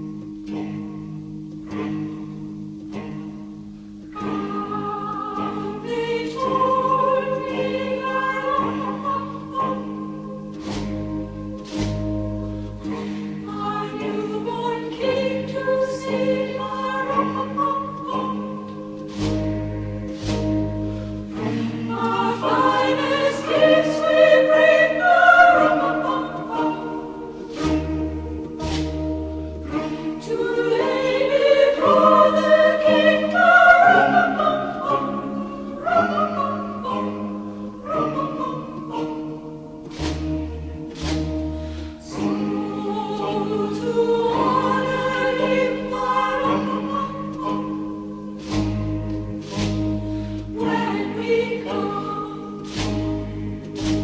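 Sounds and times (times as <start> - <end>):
choir singing: 0.0 - 54.0
orchestral backing: 0.0 - 54.0.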